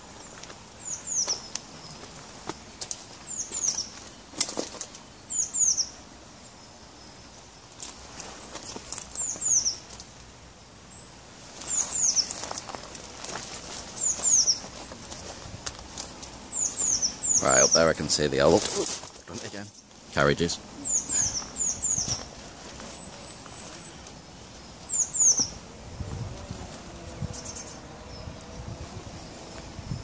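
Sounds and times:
footsteps crunching through dry grass: 0:00.0 - 0:04.9, 0:11.4 - 0:20.4, 0:21.1 - 0:26.8
bird chirping: 0:00.2 - 0:04.3, 0:05.0 - 0:07.6, 0:08.3 - 0:10.1, 0:10.9 - 0:12.8, 0:13.9 - 0:15.4, 0:16.3 - 0:18.6, 0:19.2 - 0:25.6, 0:27.2 - 0:28.7.

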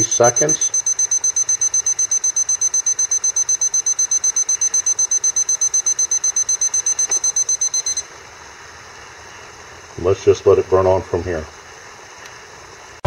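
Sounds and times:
rapid high-pitched alarm beeps: 0:00.0 - 0:08.1.

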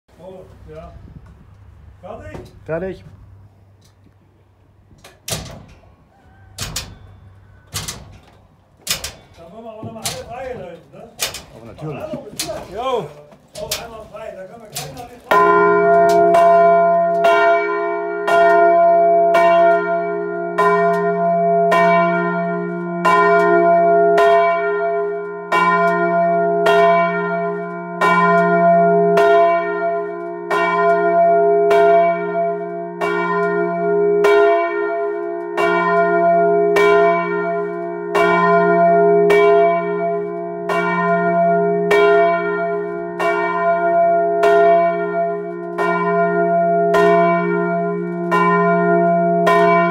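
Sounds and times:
church bell ringing: 0:06.8 - 0:08.0, 0:14.8 - 0:49.9.

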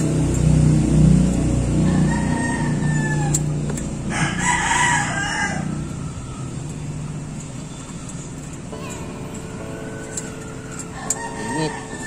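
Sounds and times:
rooster crowing: 0:01.8 - 0:06.7, 0:10.9 - 0:12.0
low steady hum: 0:08.5 - 0:12.0.

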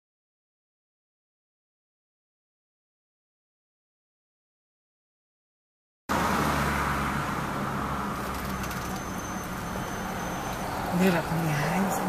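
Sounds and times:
car engine and road noise inside: 0:06.1 - 0:12.0.

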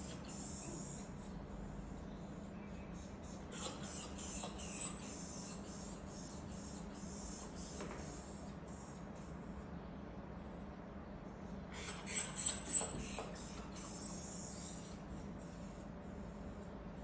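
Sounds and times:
small dog whining: 0:00.0 - 0:02.0, 0:02.9 - 0:09.1, 0:11.7 - 0:15.8.

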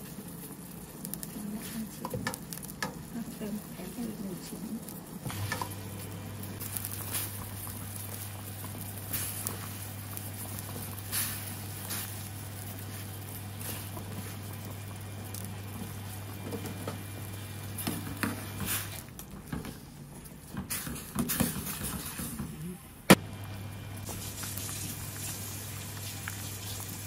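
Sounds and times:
broth boiling and bubbling: 0:00.0 - 0:27.0
steady low hum: 0:00.7 - 0:18.6.

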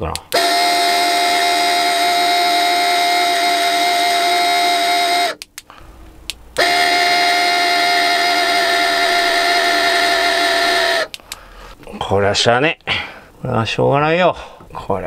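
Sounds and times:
fan motor high whine: 0:00.3 - 0:05.4, 0:06.5 - 0:11.2.

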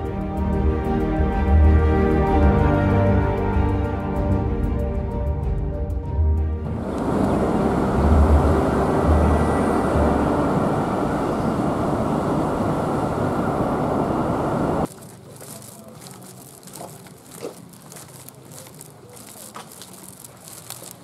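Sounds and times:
moving vehicle rumble: 0:06.6 - 0:21.0
light footsteps: 0:14.8 - 0:21.0.

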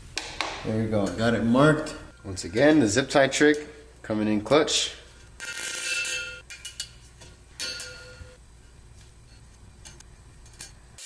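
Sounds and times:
low steady hum: 0:00.0 - 0:11.0
metal pipe ringing: 0:05.4 - 0:07.0, 0:07.6 - 0:08.4.

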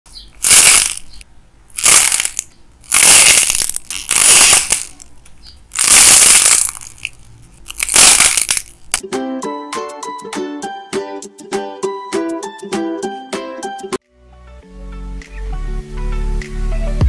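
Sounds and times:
clay crackling as it is squeezed: 0:00.2 - 0:09.0.

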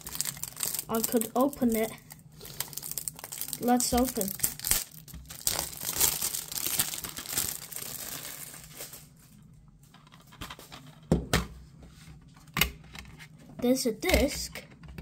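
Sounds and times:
cellophane crinkling and tearing: 0:00.0 - 0:09.4.

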